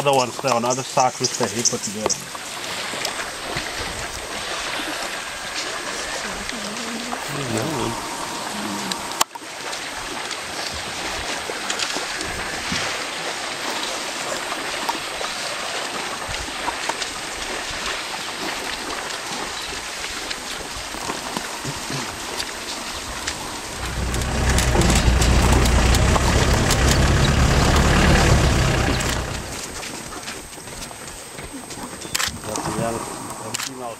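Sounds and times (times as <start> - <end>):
vehicle engine low drone: 7.1 - 9.2, 23.1 - 30.0.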